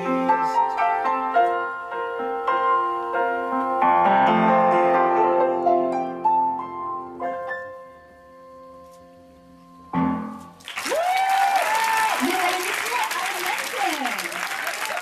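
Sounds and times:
upright piano playing: 0:00.0 - 0:10.7.

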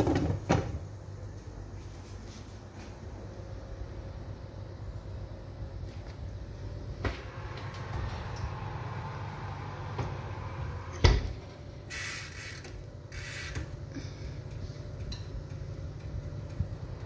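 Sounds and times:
low steady hum: 0:00.0 - 0:17.0
oven door thudding shut: 0:11.0 - 0:11.4.

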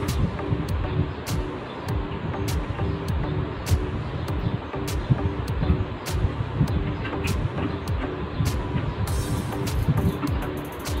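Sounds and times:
music with bass line: 0:00.0 - 0:11.0
sharp percussion hits: 0:07.2 - 0:11.0.

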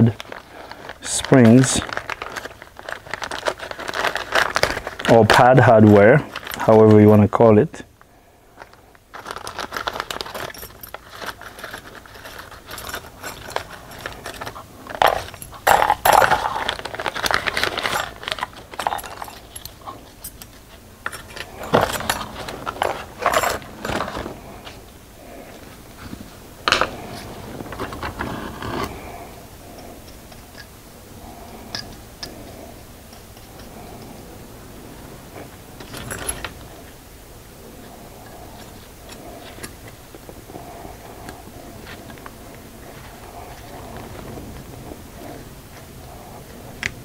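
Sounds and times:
metal clips clinking and rattling: 0:00.0 - 0:07.0, 0:09.2 - 0:24.3, 0:35.8 - 0:36.7.

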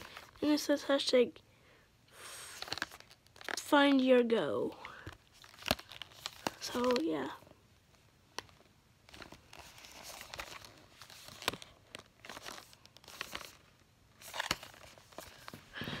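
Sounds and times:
packaging rustling and crinkling: 0:00.0 - 0:00.5, 0:02.5 - 0:04.1, 0:04.7 - 0:16.0.

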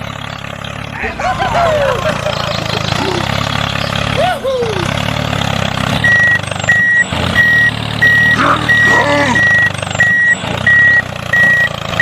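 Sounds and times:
low engine hum: 0:00.0 - 0:12.0
reversing alarm beeping: 0:06.0 - 0:12.0.

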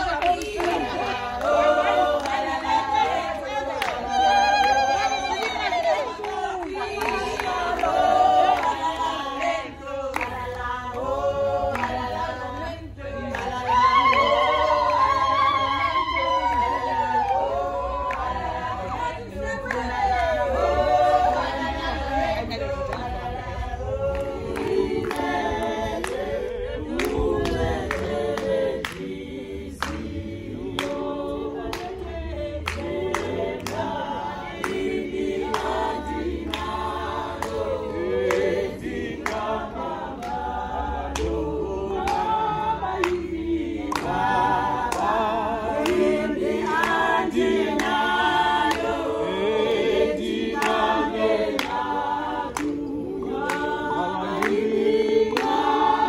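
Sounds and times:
women singing together: 0:00.0 - 0:56.0
sharp hand claps: 0:55.3 - 0:55.9.

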